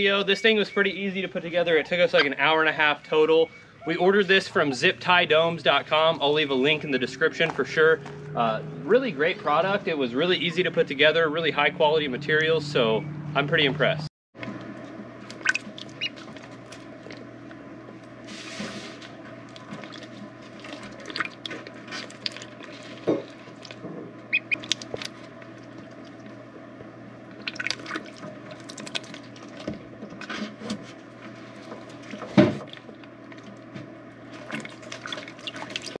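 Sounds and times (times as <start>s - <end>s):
ducklings splashing in water: 15.2s - 17.3s, 19.4s - 26.4s, 27.3s - 29.8s, 34.2s - 36.0s
water dripping: 27.3s - 29.6s, 34.4s - 36.0s.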